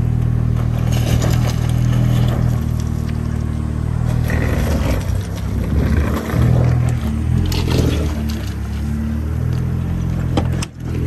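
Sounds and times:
truck engine running: 0:00.0 - 0:11.0
scraping and clattering: 0:00.6 - 0:03.3.

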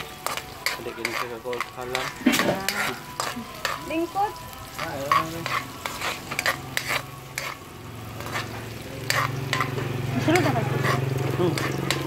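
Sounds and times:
metal spatula scraping wok: 0:00.0 - 0:12.0
vegetables sizzling in oil: 0:00.0 - 0:12.0.

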